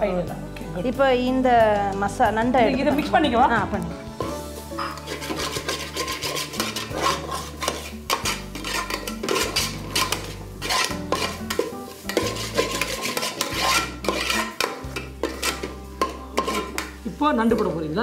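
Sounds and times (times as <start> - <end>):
metal spoon scraping a pot: 4.2 - 17.7.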